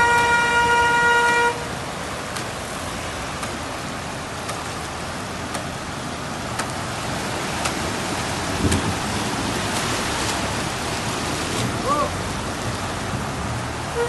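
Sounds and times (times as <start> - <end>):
vehicle horn: 0.0 - 1.7
rain hiss: 0.0 - 14.0
traffic splashing through water: 0.0 - 14.0.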